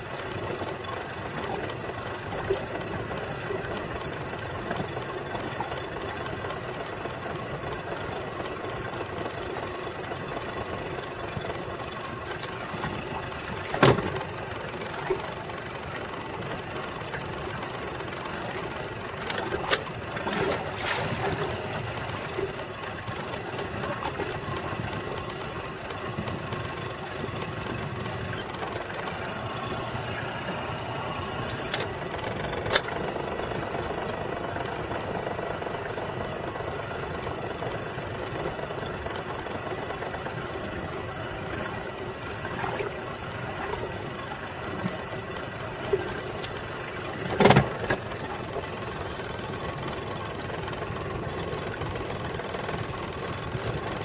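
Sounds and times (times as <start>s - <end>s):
boat motor running: 0.0s - 54.0s
sharp knocks on boat: 13.6s - 14.3s, 47.3s - 48.1s.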